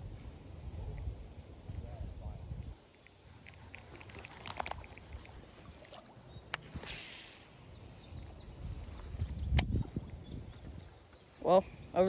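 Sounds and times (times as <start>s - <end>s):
rod swish: 6.6s - 7.5s.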